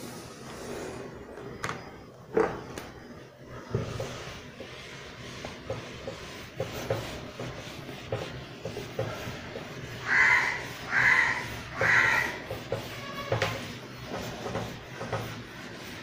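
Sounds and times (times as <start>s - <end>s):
duster rubbing on whiteboard: 3.4s - 16.0s
crow cawing: 10.0s - 12.4s.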